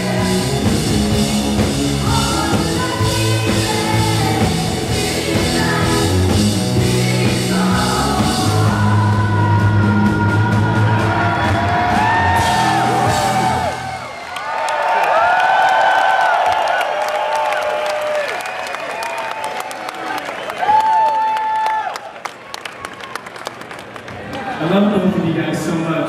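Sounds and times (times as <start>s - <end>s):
rock band playing: 0.0s - 14.4s
boy singing: 2.0s - 11.3s
high shouts and whoops: 10.7s - 22.2s.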